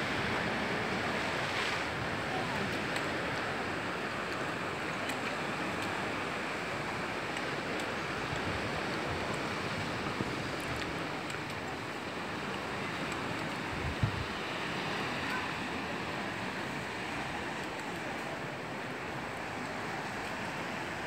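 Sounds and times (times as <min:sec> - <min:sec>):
wind rushing across microphone: 0:05.5 - 0:21.0.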